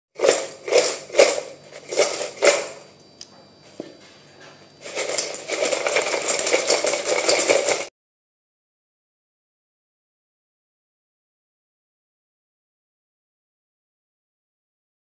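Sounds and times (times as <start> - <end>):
fried potato sticks rattling in metal bowl: 0.1 - 2.9, 4.8 - 7.9.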